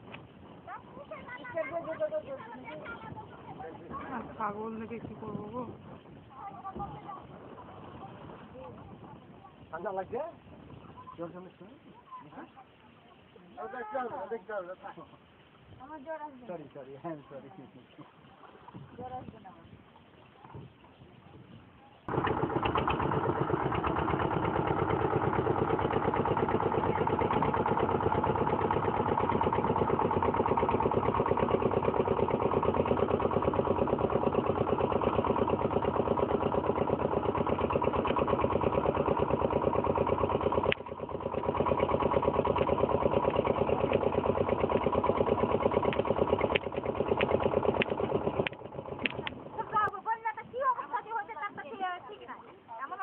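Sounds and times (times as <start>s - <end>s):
motorboat engine chugging: 22.0s - 51.2s.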